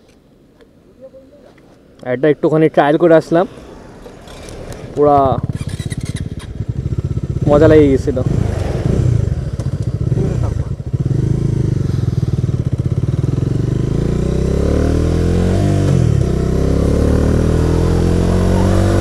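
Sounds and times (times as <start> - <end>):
motorcycle engine accelerating: 4.1 - 19.0.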